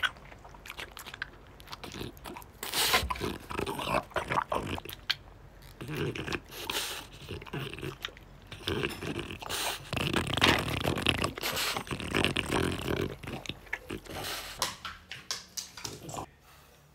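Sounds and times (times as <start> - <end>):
dog sniffing: 2.6 - 3.2, 6.4 - 7.8, 8.5 - 13.0, 13.9 - 14.6.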